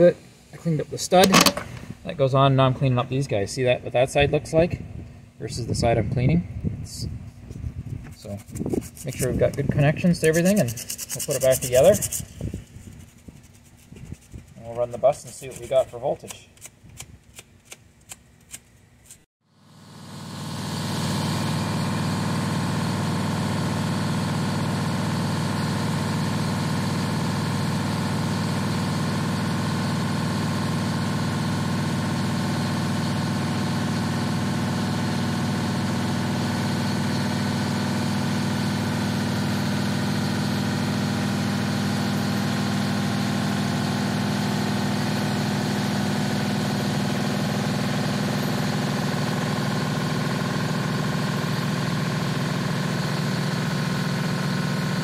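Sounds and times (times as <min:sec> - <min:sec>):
diesel bus engine idling: 0:19.7 - 0:55.0.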